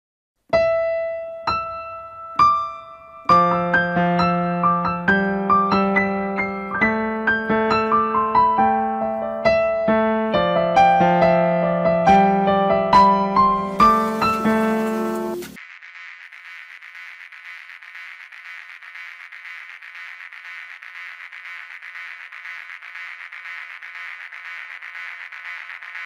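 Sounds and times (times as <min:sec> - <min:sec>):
piano music: 0:00.5 - 0:15.6.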